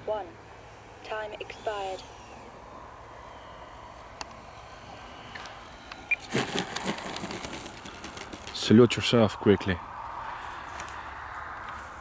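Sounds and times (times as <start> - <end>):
model jet sliding on grass: 6.1 - 8.7.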